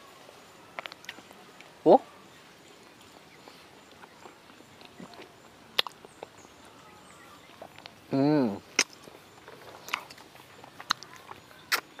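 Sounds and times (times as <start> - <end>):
person chewing: 3.0 - 6.4, 7.4 - 12.0
lip smacks: 3.8 - 6.4, 8.7 - 9.2, 9.8 - 12.0.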